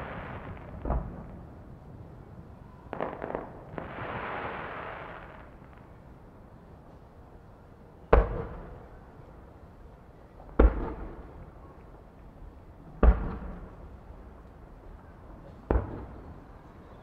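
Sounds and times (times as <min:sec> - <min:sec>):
fireworks crackling hiss: 0:00.0 - 0:01.4, 0:02.9 - 0:06.0
fireworks booming with echo: 0:00.0 - 0:01.8, 0:02.5 - 0:06.0, 0:08.1 - 0:09.0, 0:10.6 - 0:11.5, 0:13.0 - 0:13.8, 0:15.4 - 0:16.4.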